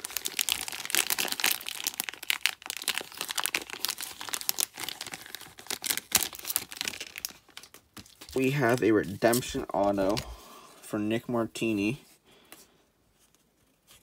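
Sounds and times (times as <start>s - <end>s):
plastic bag and sleeves crinkling: 0.0s - 10.5s.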